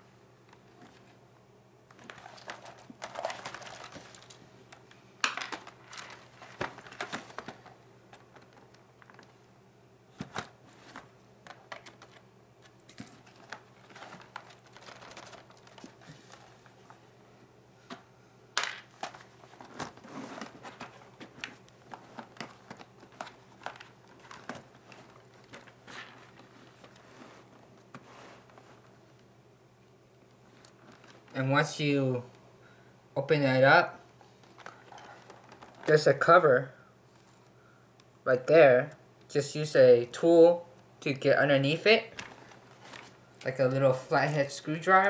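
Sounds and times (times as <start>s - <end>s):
rustling: 1.9s - 9.4s, 10.1s - 17.1s, 18.9s - 29.0s, 30.4s - 31.4s, 34.2s - 36.0s, 42.2s - 43.3s.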